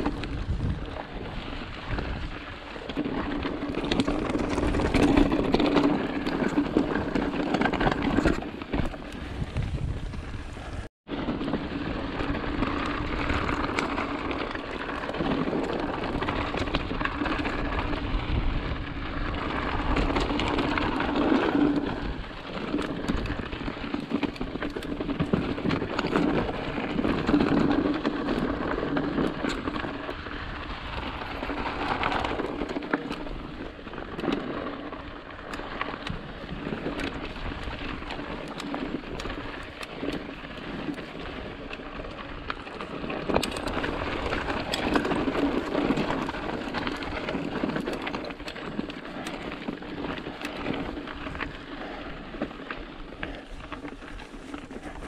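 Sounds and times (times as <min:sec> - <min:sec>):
wind on microphone: 0:00.0 - 0:33.9
bike clicks and rattles: 0:00.0 - 0:55.0
bike tyres rolling over gravel: 0:00.0 - 0:55.0.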